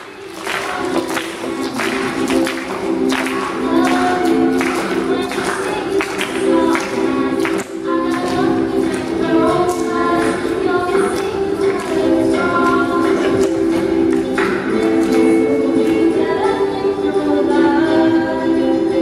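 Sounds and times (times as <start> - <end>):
women singing in harmony: 3.1 - 19.0.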